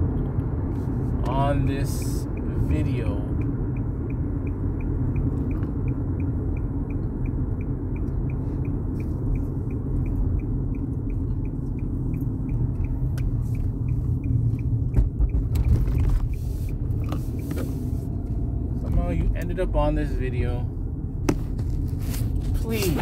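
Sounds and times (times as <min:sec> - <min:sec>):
road rumble inside car: 0:00.0 - 0:23.0
light regular ticking: 0:01.7 - 0:18.5.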